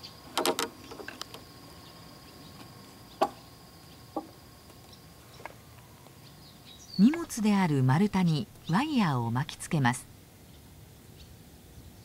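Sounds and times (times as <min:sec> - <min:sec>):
wooden logs knocking: 0:04.1 - 0:04.4.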